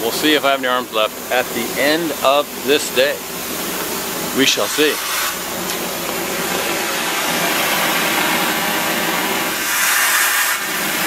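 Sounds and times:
pump engine drone: 0.0s - 11.0s
compressed air hiss: 0.2s - 11.0s.

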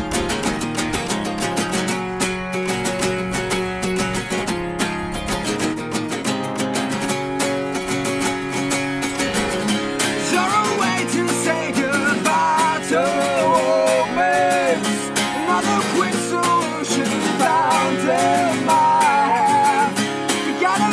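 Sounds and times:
acoustic guitars strumming: 0.0s - 20.9s
person singing: 10.2s - 20.9s.

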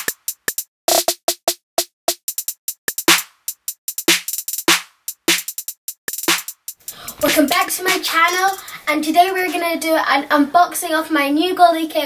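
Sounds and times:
percussive intro music beat: 0.0s - 8.8s.

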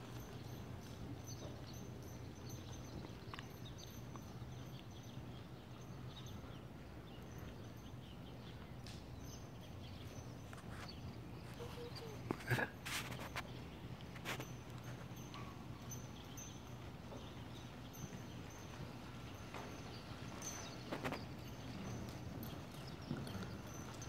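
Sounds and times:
muffled hoofbeats on sand: 11.6s - 24.0s.

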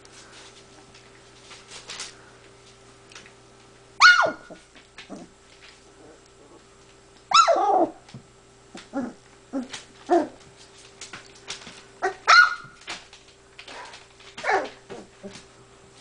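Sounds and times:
puppy barking: 4.0s - 4.6s, 7.3s - 8.0s, 12.0s - 12.8s, 14.4s - 14.8s.

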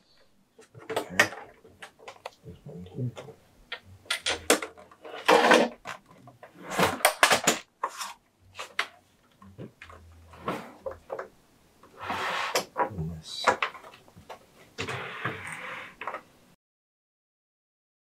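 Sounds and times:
plastic panels clicking and knocking: 0.6s - 2.4s, 3.1s - 7.7s.

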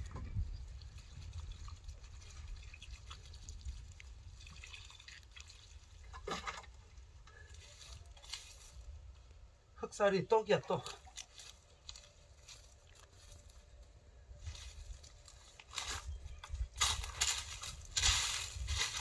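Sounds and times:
water pouring onto soil: 0.6s - 6.7s.

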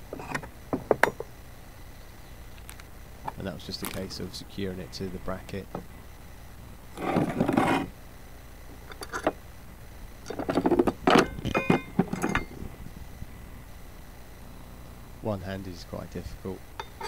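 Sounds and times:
metal parts scraping: 7.0s - 7.9s, 10.3s - 12.6s
metal parts clinking and clicking: 8.9s - 9.4s, 10.3s - 12.6s.

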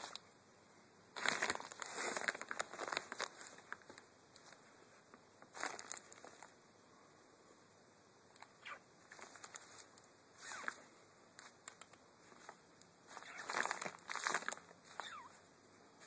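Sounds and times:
plastic bag rustling: 1.2s - 4.6s, 5.4s - 6.5s, 9.1s - 10.8s, 12.2s - 15.2s.

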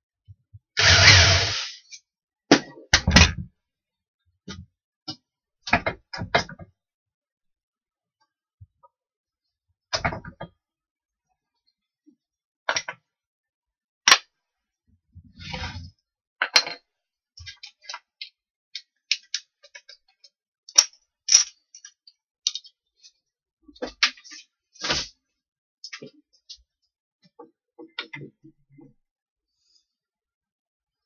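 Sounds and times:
scraping on workbench: 0.8s - 1.8s.

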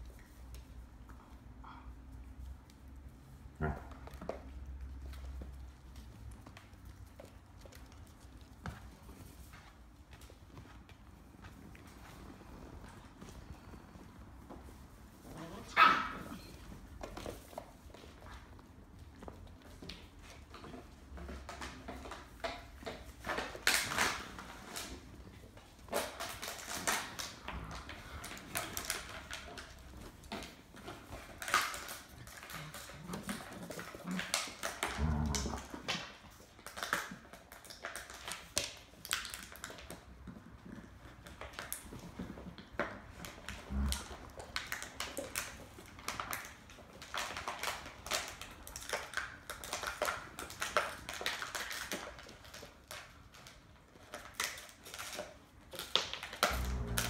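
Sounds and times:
puppy vocal sounds: 15.2s - 16.8s, 31.7s - 36.2s, 56.4s - 57.0s
claws clicking on wooden floor: 15.2s - 57.0s.

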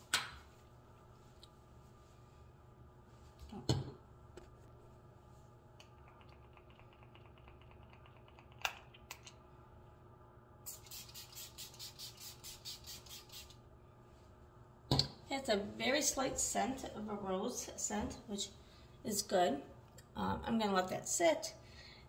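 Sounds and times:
spray bottle spritzing: 10.7s - 13.6s.

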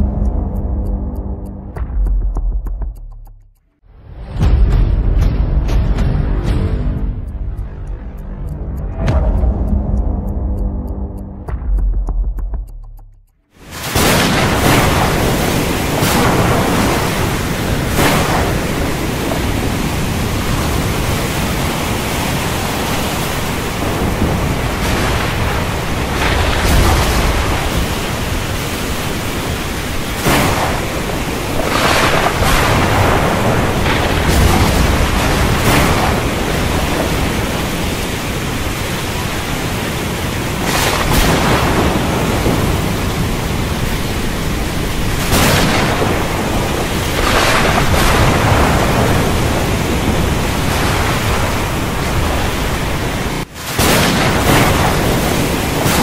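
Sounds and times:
wind: 0.0s - 3.2s, 13.4s - 56.0s
heavy rain: 13.6s - 56.0s
waves: 13.6s - 56.0s
thunder cracks: 13.7s - 53.0s, 53.7s - 56.0s
rolling thunder rumbles: 13.7s - 56.0s.

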